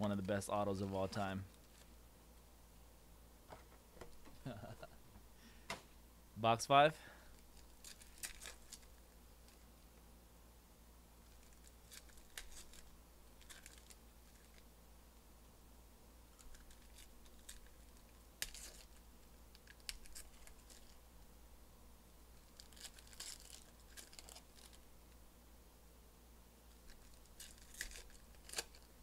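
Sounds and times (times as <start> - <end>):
cards handled: 7.3 - 9.6, 11.2 - 14.6, 26.7 - 28.9
foil wrappers crinkling and tearing: 7.3 - 9.6, 11.2 - 14.6, 16.3 - 21.0, 22.4 - 24.8, 26.7 - 29.0.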